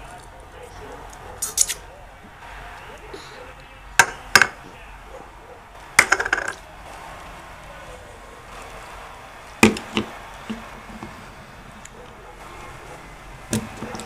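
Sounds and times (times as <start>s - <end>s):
plastic cups knocking on wood: 6.0s - 6.6s, 9.6s - 11.2s.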